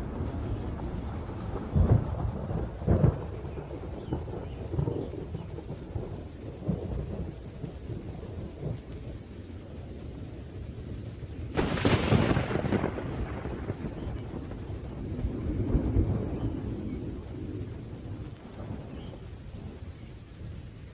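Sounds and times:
sharp thunderclap: 0:00.0 - 0:09.0, 0:11.5 - 0:19.8
rumble of thunder: 0:00.0 - 0:20.9
steady rain: 0:00.0 - 0:20.9.

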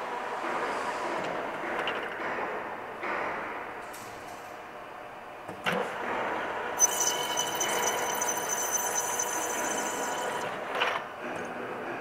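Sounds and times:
high steady whine: 0:06.8 - 0:10.7
metal lathe running: 0:06.8 - 0:10.7.

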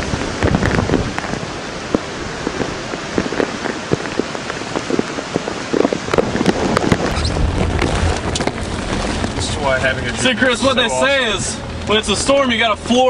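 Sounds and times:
heavy rain spattering: 0:00.0 - 0:13.0.

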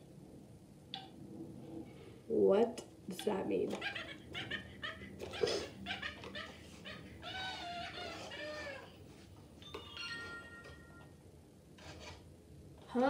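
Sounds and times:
toy owl warbling cry: 0:03.7 - 0:09.0.

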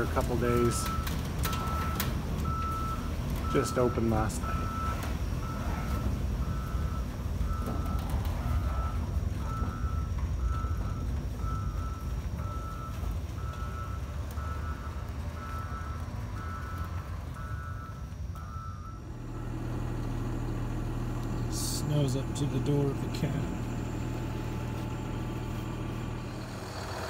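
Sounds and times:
backup alarm beeping: 0:00.0 - 0:27.0
engine low rumble: 0:00.0 - 0:27.0.

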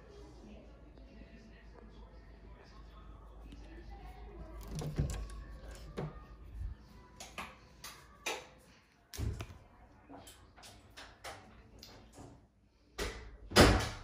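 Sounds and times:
door opening: 0:04.5 - 0:06.2.

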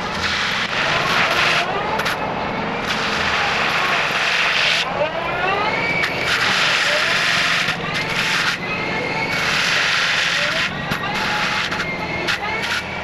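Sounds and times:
engine drone: 0:00.0 - 0:13.0
mulcher grinding wood: 0:00.0 - 0:13.0
rising whine: 0:00.0 - 0:13.0.

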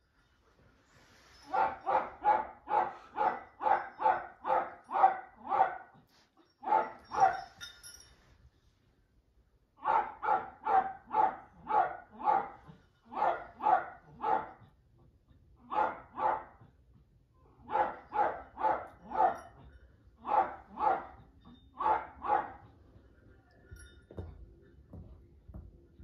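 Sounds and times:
small dog barking rapidly: 0:01.5 - 0:05.8, 0:09.8 - 0:14.6, 0:15.7 - 0:16.6, 0:17.6 - 0:19.5, 0:20.2 - 0:21.2, 0:21.8 - 0:22.6.

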